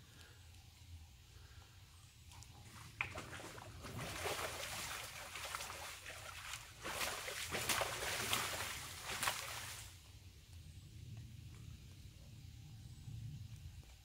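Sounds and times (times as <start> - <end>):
boar splashing in muddy water: 2.3 - 10.0.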